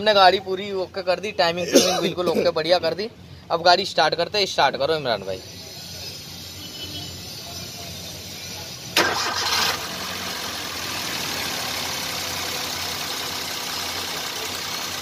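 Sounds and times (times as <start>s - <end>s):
car engine starting and idling: 8.9s - 15.0s.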